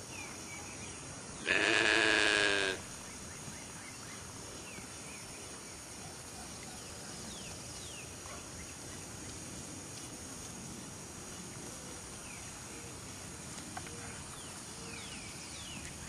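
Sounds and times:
wavering farm animal call: 1.4s - 2.9s.

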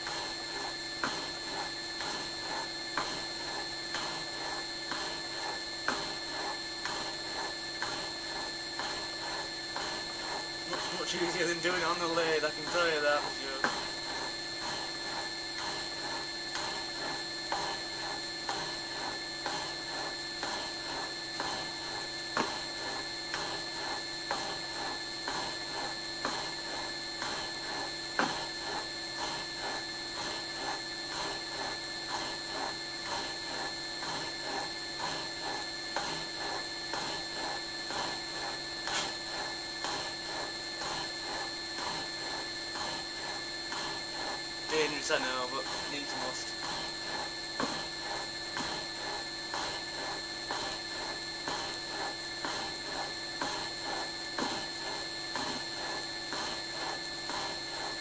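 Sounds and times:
milling machine ram stroking: 8.8s - 15.8s, 32.1s - 55.6s
motor hum: 8.8s - 15.8s, 43.7s - 55.0s.

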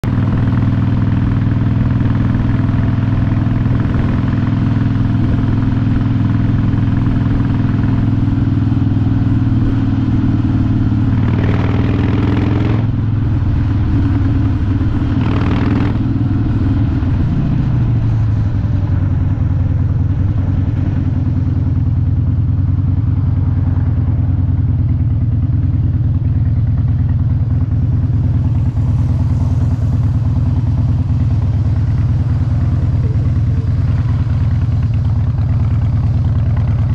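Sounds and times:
motorcycle engine running: 0.0s - 36.9s.

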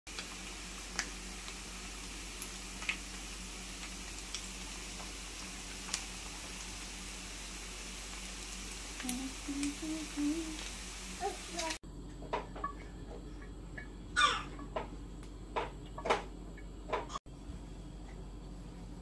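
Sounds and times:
meat sizzling in hot oil: 0.1s - 11.8s
oil popping and crackling: 0.1s - 11.8s.

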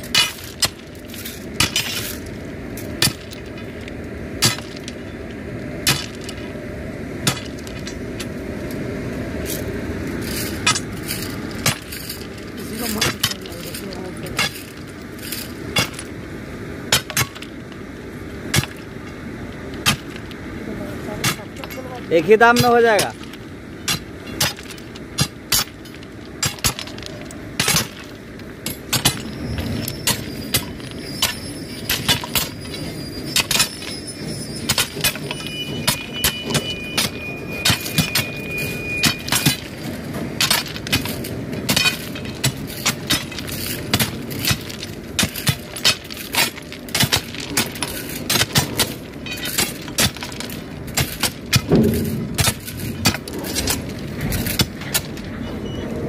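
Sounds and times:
steel bars jabbing into stone ballast: 0.0s - 3.8s, 4.4s - 5.1s, 5.8s - 6.5s, 7.2s - 8.3s, 10.1s - 16.2s, 16.9s - 17.7s, 18.5s - 20.4s, 21.2s - 55.4s
metallic ring: 28.6s - 46.6s, 47.4s - 54.6s.

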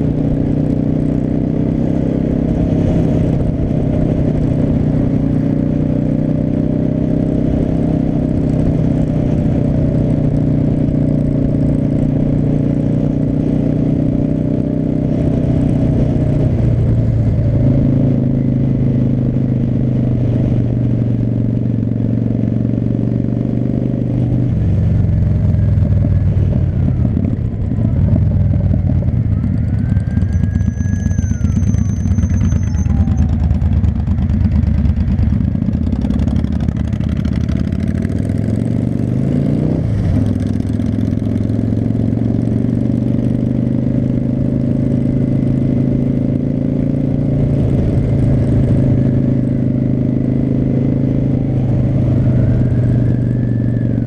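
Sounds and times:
motorcycle engine revving: 0.0s - 54.0s
faint siren wailing: 25.5s - 34.1s, 51.0s - 54.0s.

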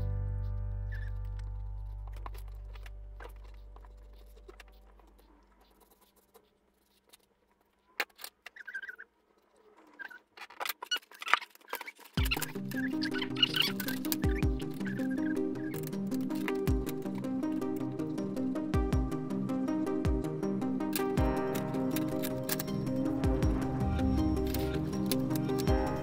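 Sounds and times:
background music: 0.0s - 4.7s, 12.2s - 26.0s.

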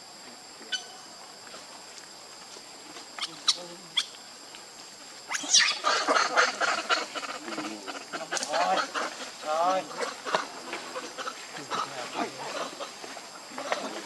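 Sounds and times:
insects droning: 0.0s - 14.0s
monkey screaming: 5.3s - 12.9s.

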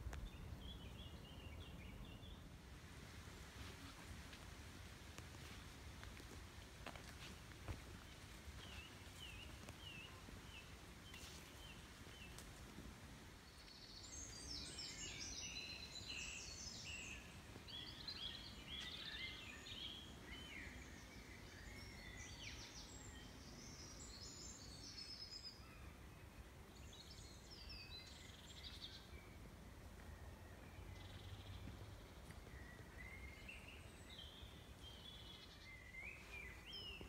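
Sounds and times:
faint low rumble: 28.0s - 37.0s.

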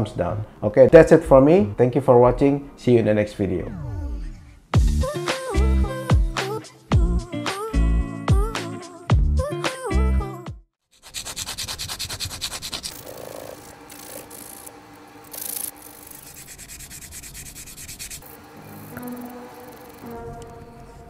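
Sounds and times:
hand sanding plastic: 11.0s - 18.9s.

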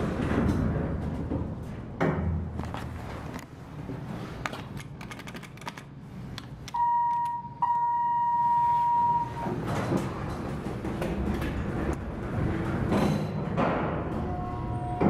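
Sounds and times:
elevator doors rumbling: 9.2s - 15.0s.

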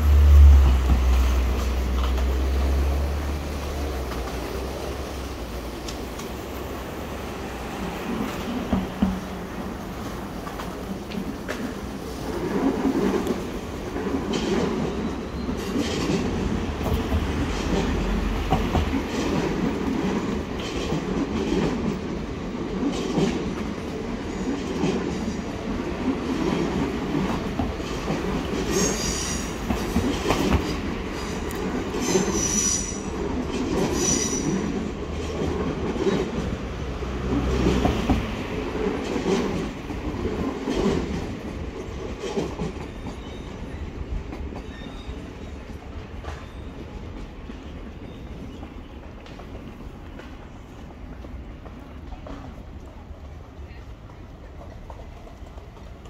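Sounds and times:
train rumbling: 0.0s - 56.0s
wheels clacking over rail joints: 0.0s - 56.0s
high wheel squeals: 32.0s - 33.2s, 33.9s - 34.7s.

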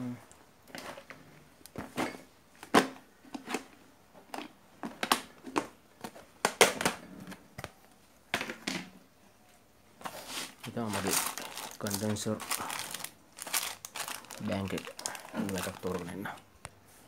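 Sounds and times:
plastic bag rustling: 10.0s - 16.4s.

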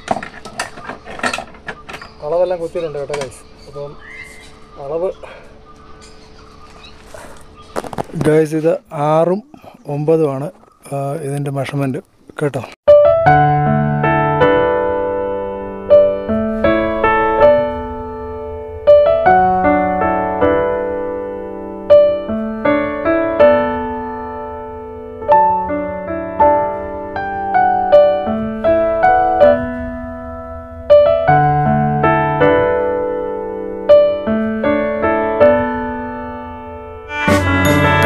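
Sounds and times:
slow gentle piano music: 12.9s - 38.0s.

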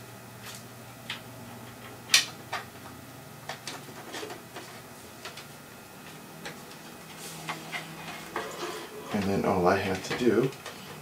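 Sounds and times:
light taps and rattles: 9.2s - 10.9s.

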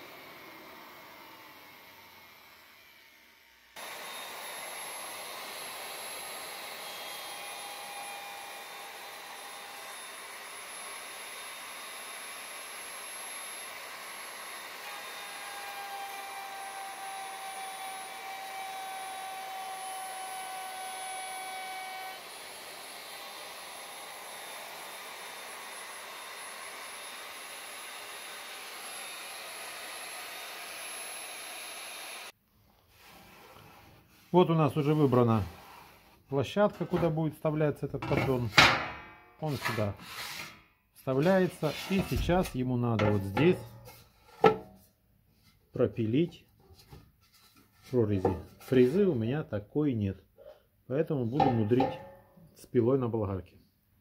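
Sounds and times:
router milling wood: 0.0s - 32.4s.

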